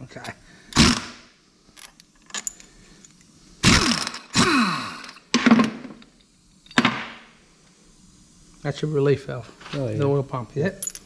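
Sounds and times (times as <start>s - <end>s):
power wrench spinning: 0.7s - 1.2s, 1.8s - 5.3s.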